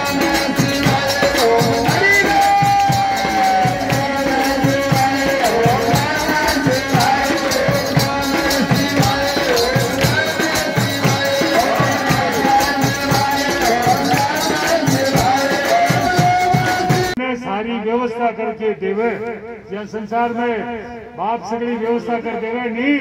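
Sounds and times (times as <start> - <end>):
drum steady beat: 0.0 - 17.2
person singing: 0.0 - 17.2.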